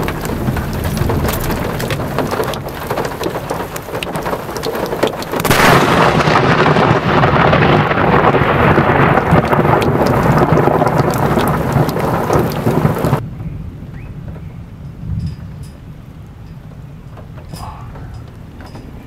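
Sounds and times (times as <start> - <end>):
deep low rumble: 0.0 - 4.4
heavy rain pouring: 0.0 - 13.2.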